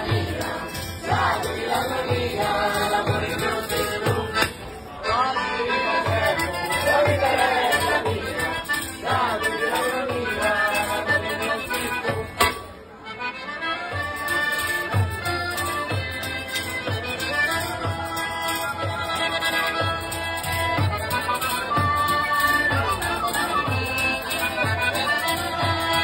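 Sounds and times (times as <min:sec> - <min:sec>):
voices singing: 0:00.0 - 0:12.4, 0:21.4 - 0:26.0
accordion folk music: 0:00.0 - 0:26.0.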